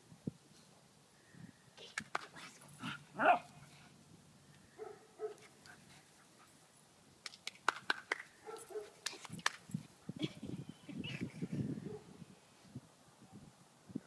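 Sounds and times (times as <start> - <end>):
small dog barking: 3.2 - 3.6, 4.8 - 5.4, 8.4 - 9.0.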